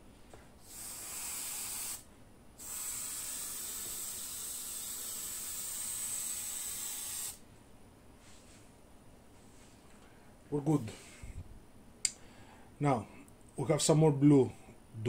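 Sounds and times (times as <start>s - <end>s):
airbrush spraying hiss: 0.6s - 7.4s.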